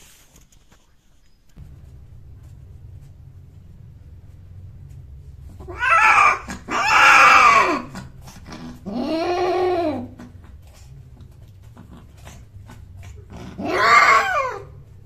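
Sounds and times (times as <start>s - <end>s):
cat yowling: 5.6s - 10.7s, 13.0s - 14.8s.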